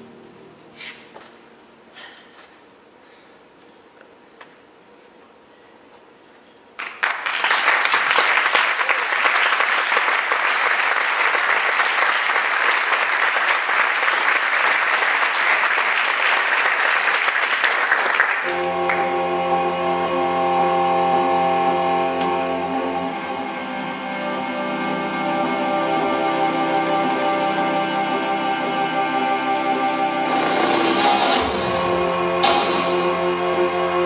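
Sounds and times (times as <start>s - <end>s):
music with sustained notes: 0.0s - 1.8s, 18.4s - 34.0s
audience applauding: 6.8s - 19.1s.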